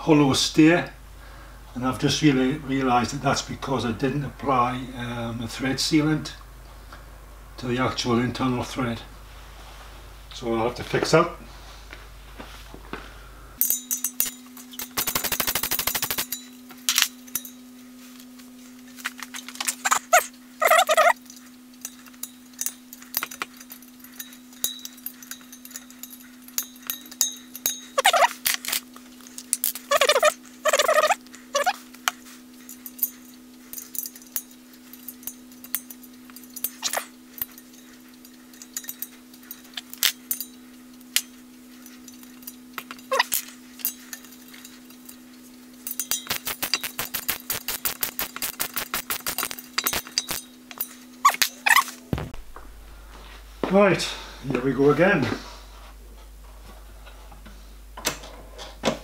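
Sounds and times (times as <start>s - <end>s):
steady low hum: 0.0s - 59.0s
metal tools clicking on metal: 13.6s - 17.6s, 19.2s - 45.2s, 45.8s - 52.0s
short squeals: 19.7s - 21.2s, 28.0s - 28.4s, 29.8s - 31.8s
socket ratchet clicks: 46.1s - 50.4s.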